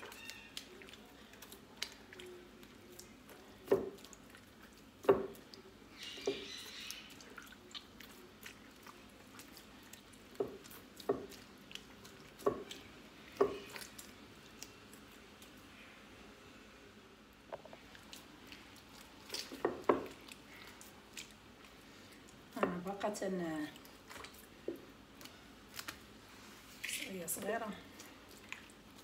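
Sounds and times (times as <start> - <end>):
hands kneading butter squelching: 0.0 - 16.2, 17.5 - 29.0
butter squishes and slaps: 17.5 - 22.6, 23.8 - 26.2.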